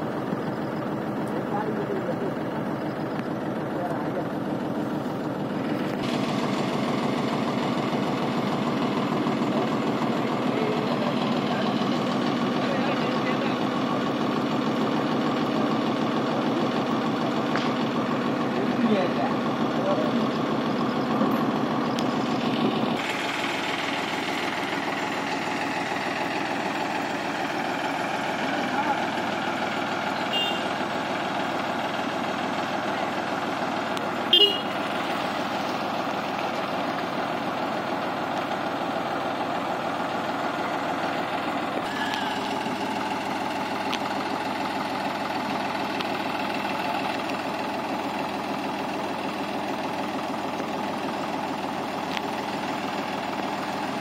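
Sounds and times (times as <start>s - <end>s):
diesel engine idling: 0.0s - 54.0s
short horn toot: 30.3s - 30.7s, 34.3s - 34.8s.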